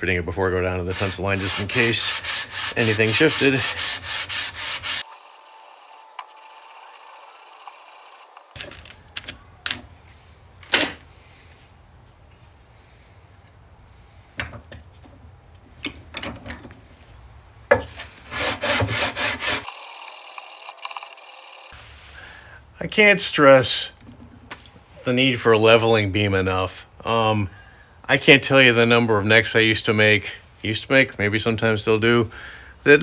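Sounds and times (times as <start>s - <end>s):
sanding wood strokes: 0.7s - 8.6s, 18.2s - 22.2s.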